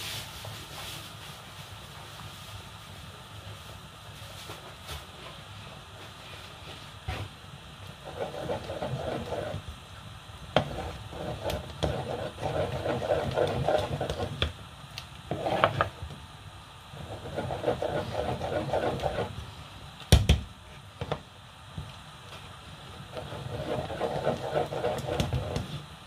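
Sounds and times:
wooden spatula stirring thick soup: 8.0 - 9.6, 10.6 - 14.5, 15.3 - 16.0, 17.0 - 19.4, 23.0 - 25.8.

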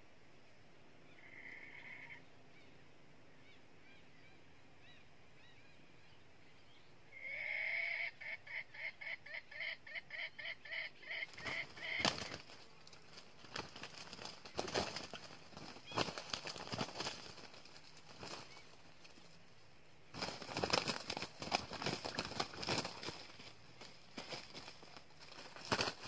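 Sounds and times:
rooster calling and cackling: 7.2 - 12.3.

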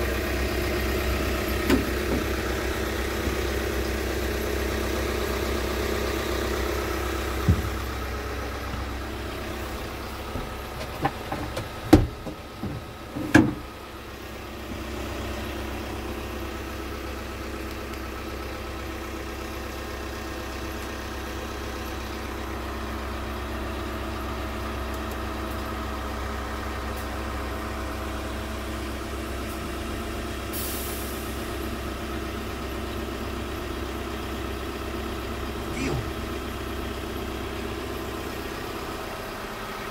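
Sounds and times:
diesel engine idling: 0.0 - 39.9
knocks and thumps: 7.4 - 7.9, 10.3 - 13.6.

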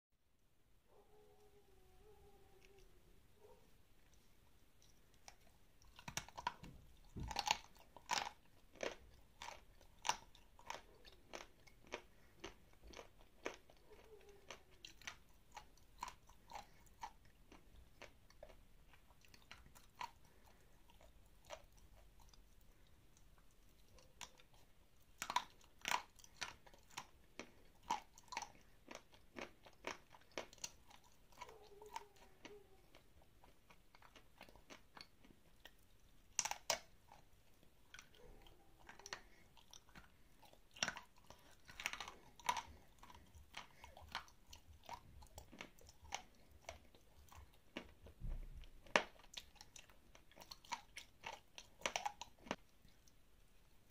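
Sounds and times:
crunchy chewing: 2.6 - 53.9.

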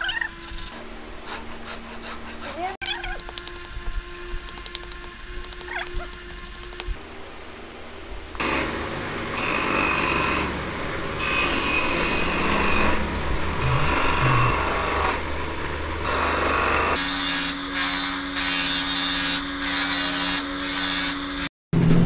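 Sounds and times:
electric motor hum: 2.8 - 7.0, 8.4 - 18.6
grinding wheel grinding wood: 8.5 - 15.3.

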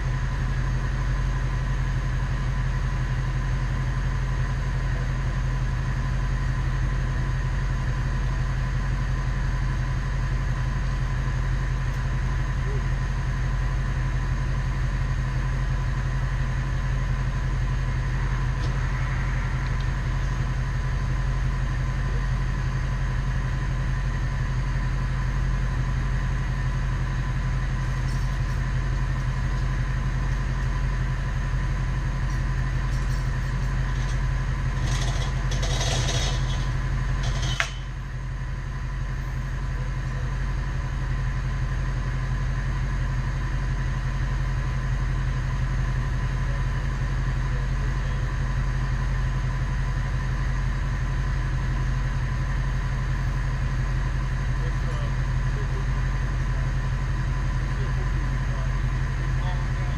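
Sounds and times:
truck engine idling: 0.0 - 59.9.

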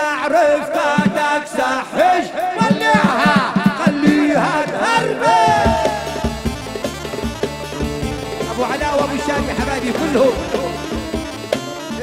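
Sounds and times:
person singing: 0.0 - 6.4, 8.5 - 11.2
steady drum beat: 0.9 - 12.0
sliding folk melody: 5.7 - 12.0.

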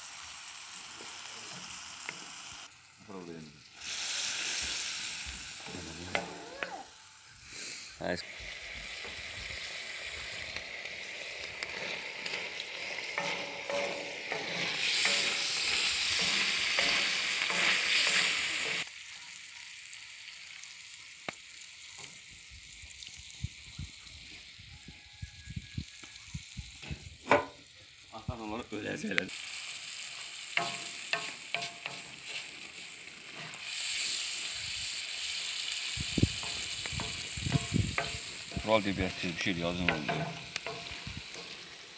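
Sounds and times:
meat and onions sizzling: 0.0 - 41.9
wooden spoon scraping iron: 11.6 - 18.8, 36.4 - 41.8.

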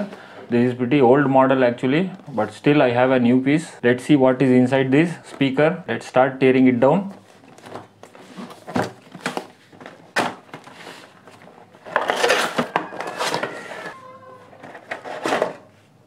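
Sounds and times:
plastic packaging rustling: 7.1 - 15.8.

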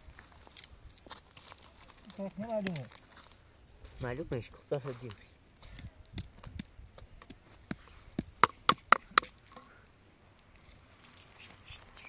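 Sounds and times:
digging sticks knocking stony soil: 0.5 - 3.2, 4.5 - 9.7.

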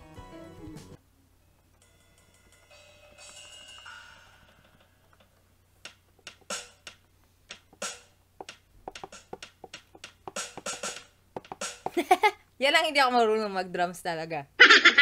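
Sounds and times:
sampled drum hits: 5.9 - 12.0.

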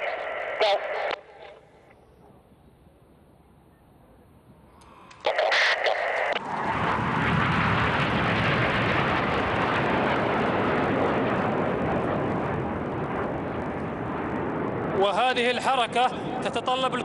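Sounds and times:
jet aircraft flying past low: 5.2 - 17.0.

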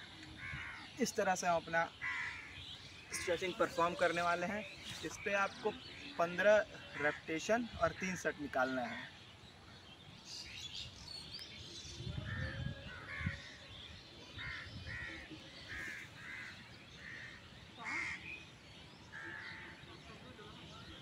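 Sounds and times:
small birds chirping: 0.0 - 21.0
crows cawing: 0.4 - 1.0, 1.9 - 3.8, 6.8 - 7.3, 12.3 - 13.6, 14.4 - 18.4, 19.1 - 19.8.

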